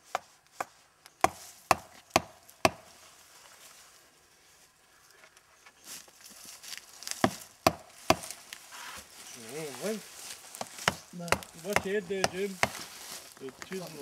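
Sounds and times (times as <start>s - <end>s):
tool chopping tree bark: 0.0s - 2.9s, 7.1s - 8.4s, 10.5s - 12.9s.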